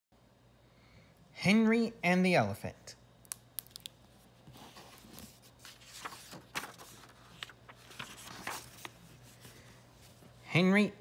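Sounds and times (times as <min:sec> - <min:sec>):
book pages turning: 0:03.6 - 0:10.2.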